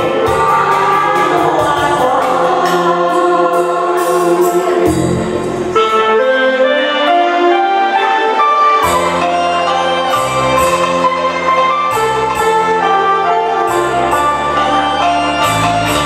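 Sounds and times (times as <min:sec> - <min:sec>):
man and woman singing duet: 0:00.0 - 0:05.9
recorded backing track: 0:00.0 - 0:16.0.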